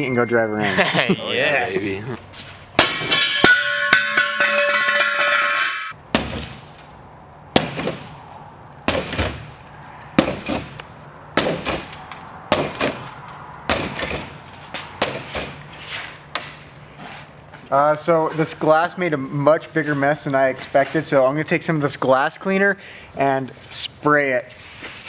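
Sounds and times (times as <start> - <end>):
glass cracking and clattering: 2.8 - 7.0, 7.6 - 15.6
ringing clinking sound: 3.1 - 5.9
broom striking car window glass: 7.5 - 8.1, 13.7 - 16.6.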